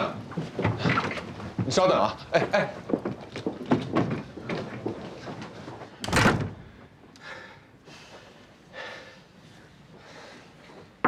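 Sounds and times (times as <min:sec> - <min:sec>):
wooden door slamming shut: 0:06.0 - 0:06.7.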